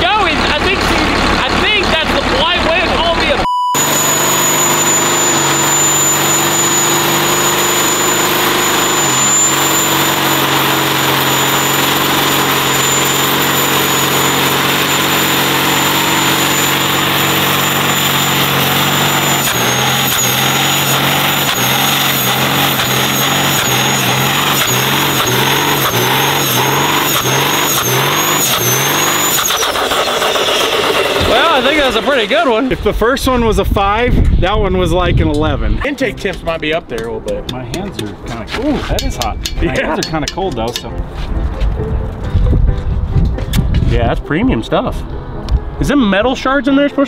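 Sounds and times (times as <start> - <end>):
diesel engine revving: 0.0 - 40.0
turbo whistle: 3.4 - 31.7.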